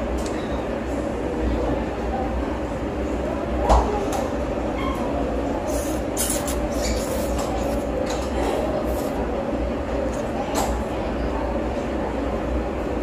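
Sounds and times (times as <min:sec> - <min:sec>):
noodles slurped: 0:05.7 - 0:07.9.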